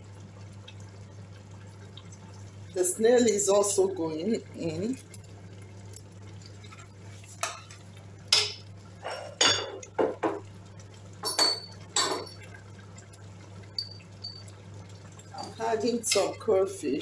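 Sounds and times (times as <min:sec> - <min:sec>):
metal spoon clinking on pot: 0:13.8 - 0:14.5.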